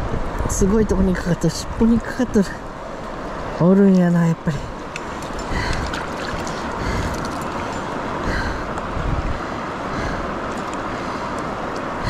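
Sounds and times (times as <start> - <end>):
wind buffeting microphone: 0.0 - 3.5, 4.7 - 12.0
river rapids rushing: 4.6 - 12.0.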